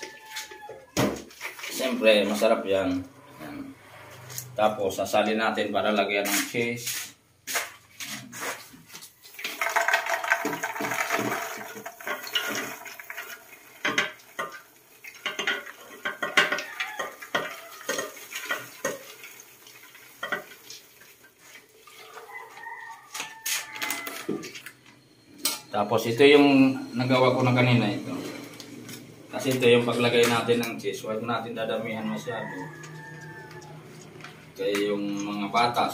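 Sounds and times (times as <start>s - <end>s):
popcorn falling into metal pot: 9.3s - 14.6s
metal pots knocking: 9.4s - 19.1s, 20.2s - 20.6s.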